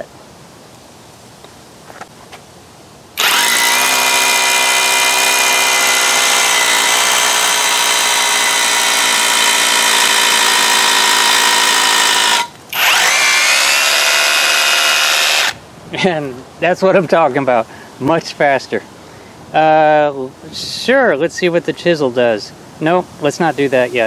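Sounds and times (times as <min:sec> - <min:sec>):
hammer drill boring into concrete: 0:03.2 - 0:15.6.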